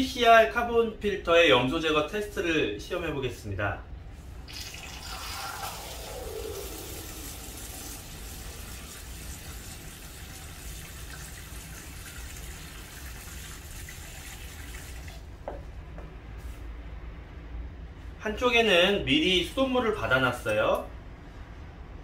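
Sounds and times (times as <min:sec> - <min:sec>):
water pouring into paper cup: 0:04.4 - 0:15.3
light knock: 0:15.4 - 0:16.1.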